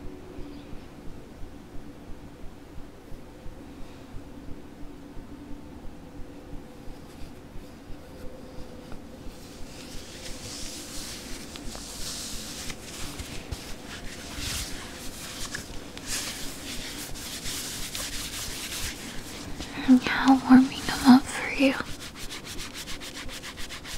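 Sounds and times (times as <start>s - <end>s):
satin rubbing over lens: 7.0s - 23.9s.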